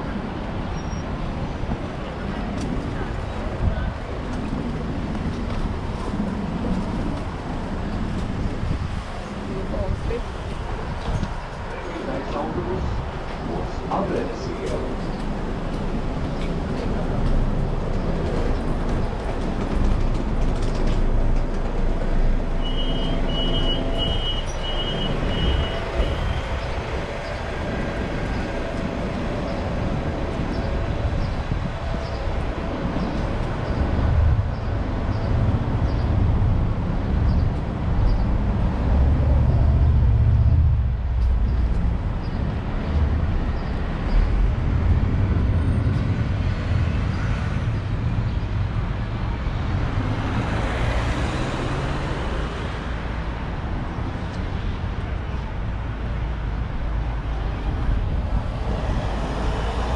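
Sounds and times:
traffic rumble: 0.0 - 59.9.

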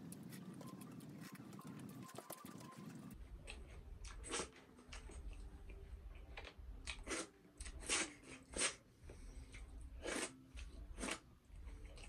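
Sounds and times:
person chewing: 3.4 - 12.0.

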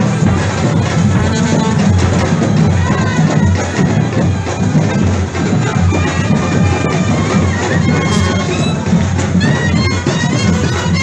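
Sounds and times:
live folk dance music: 0.0 - 11.0
steady drum beat: 0.0 - 11.0.

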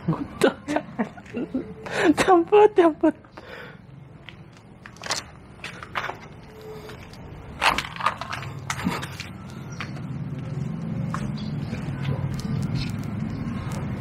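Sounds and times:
sharp knocks and crunches: 7.5 - 10.0.

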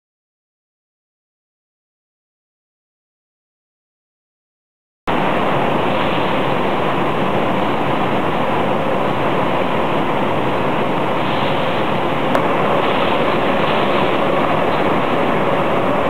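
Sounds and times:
freezer and conveyor machinery: 5.1 - 16.0.

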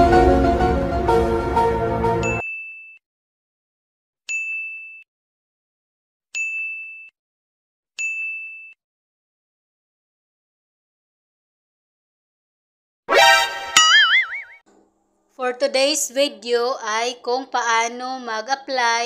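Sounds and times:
intro music: 0.0 - 2.4
bright electronic dings: 2.2 - 3.0, 13.8 - 14.6.

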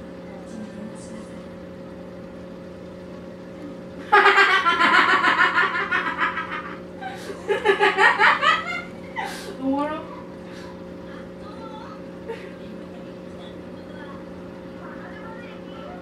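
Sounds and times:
steady low hum: 0.0 - 16.0
person laughing: 4.0 - 9.6.

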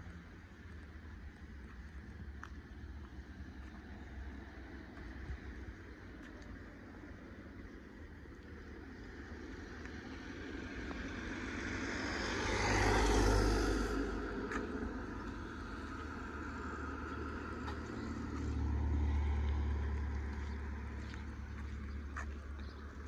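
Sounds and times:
vehicle engine rumble: 0.0 - 23.0
car driving past: 10.2 - 23.0.

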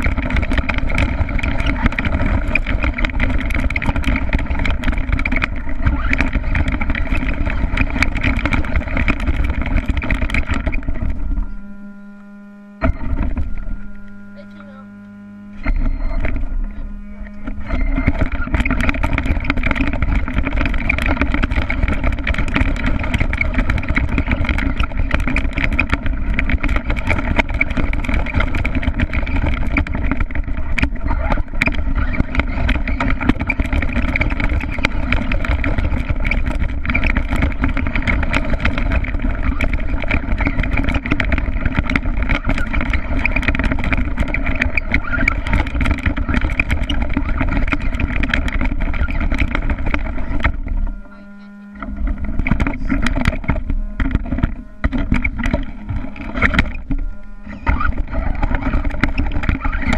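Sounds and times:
clicks and knocks from bouncing: 0.0 - 11.4, 17.2 - 59.9
small engine droning: 0.0 - 59.9.

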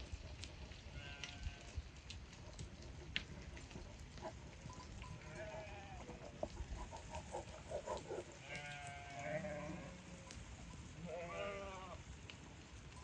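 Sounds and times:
sheep bleating: 5.2 - 6.2, 8.3 - 10.2, 11.0 - 12.0.

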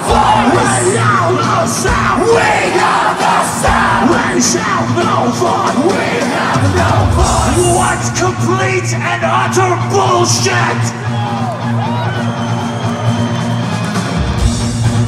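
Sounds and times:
yelled vocals: 0.0 - 10.9
live rock band: 0.0 - 15.0.

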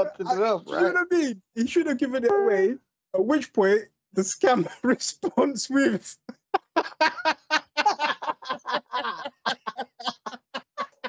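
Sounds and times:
breathy laughter: 6.4 - 11.0.

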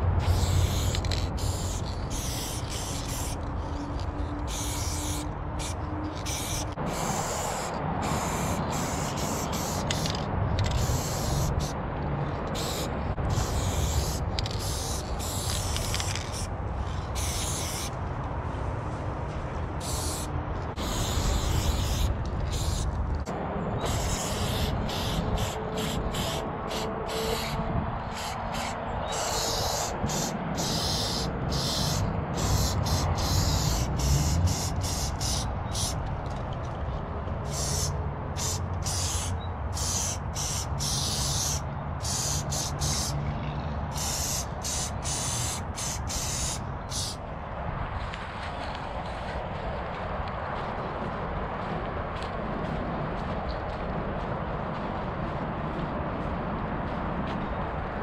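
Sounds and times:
steady low rumble: 0.0 - 41.1
spray paint can hissing: 0.2 - 11.8, 12.5 - 18.0, 19.8 - 23.0, 23.8 - 27.6, 28.2 - 36.0, 37.5 - 43.1, 43.9 - 47.2.

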